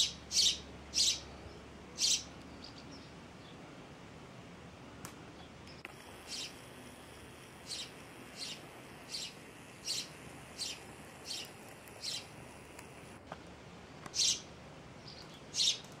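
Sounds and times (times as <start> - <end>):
sparrow chirping: 0.0 - 1.3, 2.0 - 3.1, 6.3 - 6.6, 7.6 - 12.3, 14.1 - 15.9.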